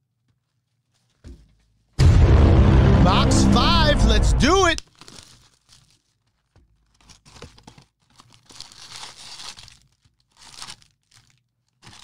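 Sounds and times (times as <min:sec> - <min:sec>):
wrapping being torn and crinkled: 0:04.8 - 0:12.0.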